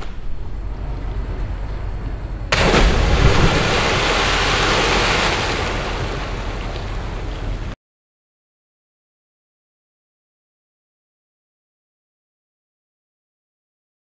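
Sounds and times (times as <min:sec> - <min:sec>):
loud splash into lake: 0:02.5 - 0:07.8
rushing hiss of churned water: 0:02.5 - 0:07.8.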